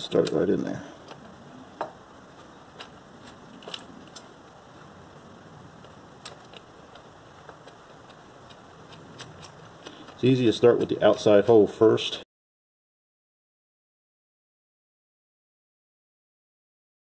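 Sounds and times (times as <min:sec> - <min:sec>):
steady low hiss: 0:00.0 - 0:12.2
metal clicks and taps: 0:05.8 - 0:10.2.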